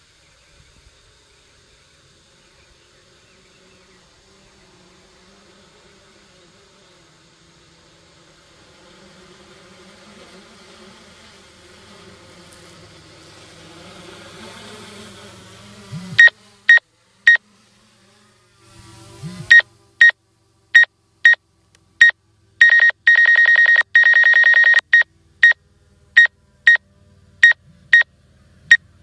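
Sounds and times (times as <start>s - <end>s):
faint steady hum: 0.0s - 29.0s
high electronic beeps: 22.6s - 25.6s.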